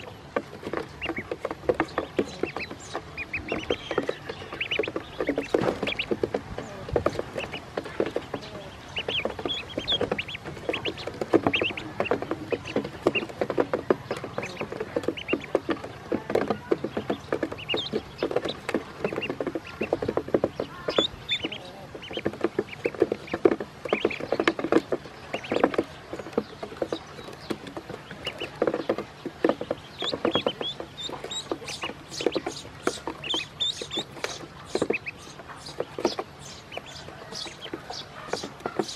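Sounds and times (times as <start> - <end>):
ducklings peeping: 0.0 - 38.9.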